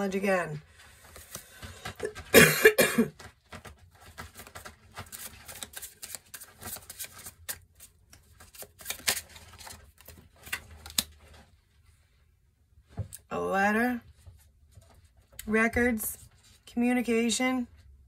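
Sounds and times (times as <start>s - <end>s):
cards clicking and rustling: 3.1s - 11.3s.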